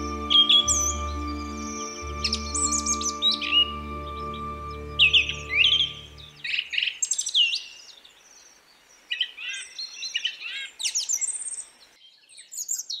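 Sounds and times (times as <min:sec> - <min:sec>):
downward-sweeping bird whistles: 0:00.0 - 0:07.7
background hiss: 0:00.0 - 0:12.0
small birds chirping: 0:00.0 - 0:13.0.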